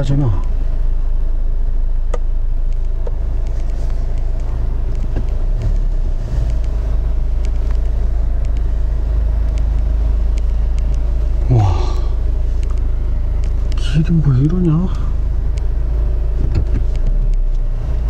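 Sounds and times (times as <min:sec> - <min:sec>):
car engine and road rumble: 0:00.0 - 0:18.0
light ticks: 0:02.1 - 0:05.8, 0:06.4 - 0:08.7, 0:09.4 - 0:11.0, 0:12.6 - 0:13.9, 0:14.6 - 0:15.7, 0:16.6 - 0:17.7.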